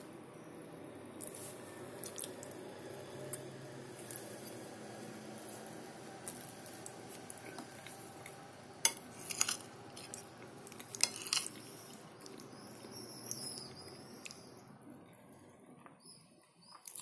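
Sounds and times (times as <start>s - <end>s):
fork clinking and scraping plate: 8.8s - 10.2s, 10.8s - 11.7s.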